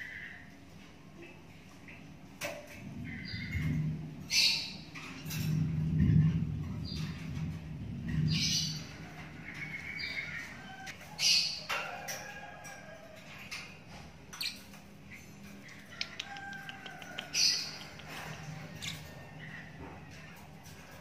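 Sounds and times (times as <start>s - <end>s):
bird chick chirping and squawking: 8.1s - 21.0s.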